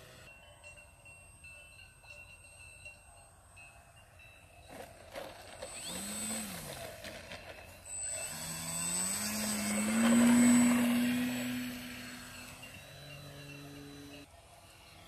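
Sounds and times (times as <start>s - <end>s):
model plane motor whining: 0.0s - 0.3s, 4.7s - 15.0s.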